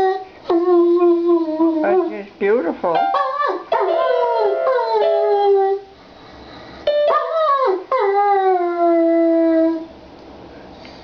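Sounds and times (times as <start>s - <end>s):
dog howling: 3.1s - 5.9s, 7.1s - 9.9s
electronic keyboard held notes: 6.9s - 7.5s.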